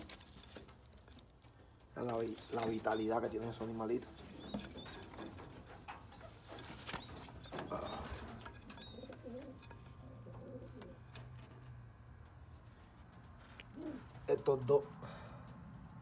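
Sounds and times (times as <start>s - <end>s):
pigeons cooing: 2.0s - 11.1s, 13.6s - 14.3s.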